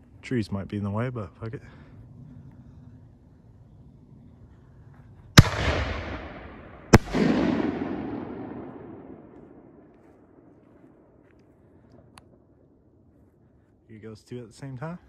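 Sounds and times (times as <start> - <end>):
rolling echo: 1.7 - 13.5.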